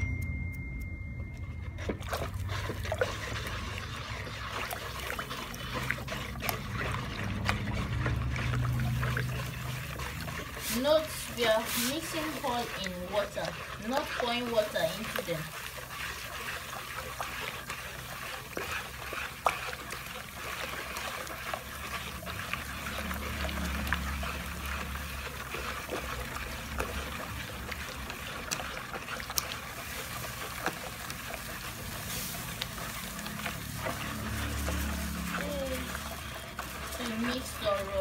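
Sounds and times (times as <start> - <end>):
liquid trickling and sloshing: 1.4 - 38.0.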